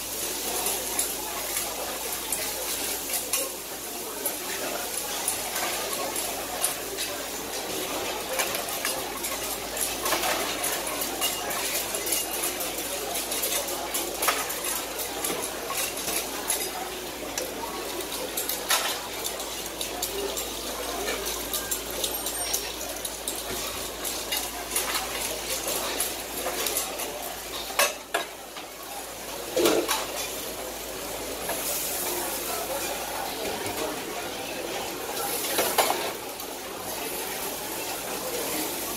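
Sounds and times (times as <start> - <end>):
seafood sizzling on a griddle: 0.0 - 38.9.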